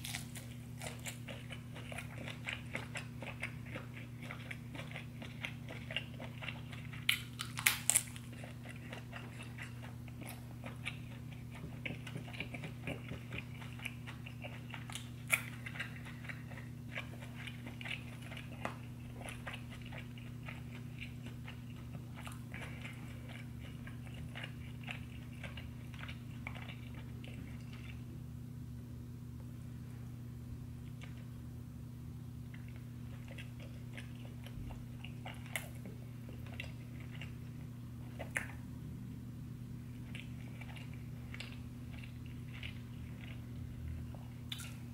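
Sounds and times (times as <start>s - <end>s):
person chewing and eating: 0.0s - 28.2s, 30.7s - 31.5s, 32.4s - 39.0s, 39.8s - 44.9s.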